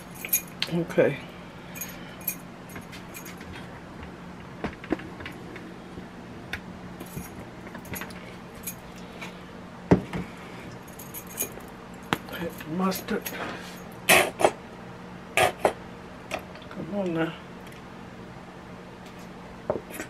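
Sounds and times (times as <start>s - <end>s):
metallic jingle of bracelets: 0.0s - 0.6s, 1.8s - 3.4s, 8.0s - 8.8s, 10.9s - 11.7s
steady low hum: 0.0s - 20.0s.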